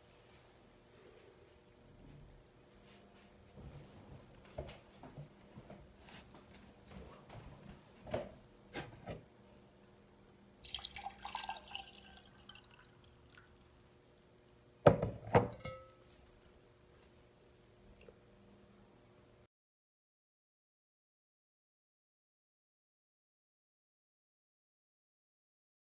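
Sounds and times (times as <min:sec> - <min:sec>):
water poured into a glass: 0:10.6 - 0:13.7
glass knocking on wooden counter: 0:14.9 - 0:15.9.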